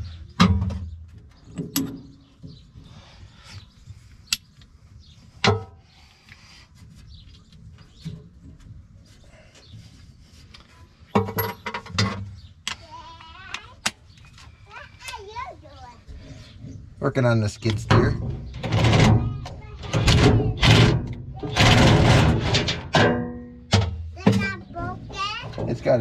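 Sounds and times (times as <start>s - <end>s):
metal clanks and knocks: 0.4s - 2.6s, 5.4s - 5.8s, 11.1s - 12.4s, 17.6s - 26.0s.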